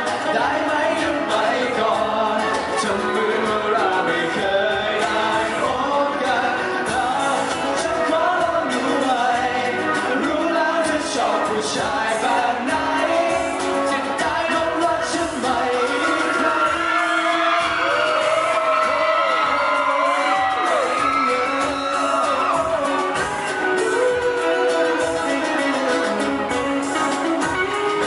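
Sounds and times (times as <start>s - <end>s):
strummed acoustic guitar: 0.0s - 19.8s
men singing into microphones: 0.0s - 28.0s.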